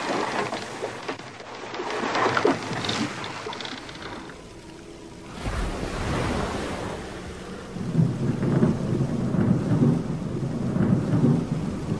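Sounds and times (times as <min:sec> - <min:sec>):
rain hissing: 0:04.4 - 0:11.9
thunder rumbling: 0:05.4 - 0:11.9.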